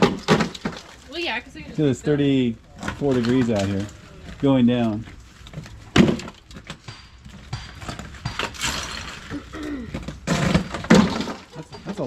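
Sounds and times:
ice clinking and crunching: 0.0 - 1.2, 2.8 - 6.5, 7.8 - 11.7.

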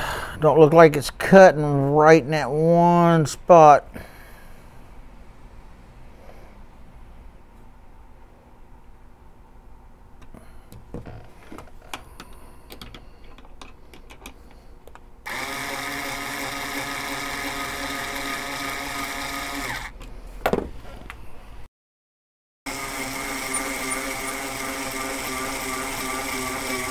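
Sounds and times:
power drill spinning: 15.2 - 20.0, 22.7 - 26.9
cutter shaving brass: 15.3 - 19.9, 22.7 - 26.9.

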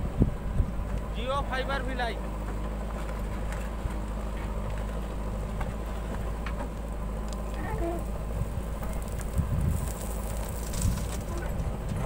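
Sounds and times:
diesel engine running under load: 0.0 - 12.0
bucket digging into soil: 8.9 - 11.4.

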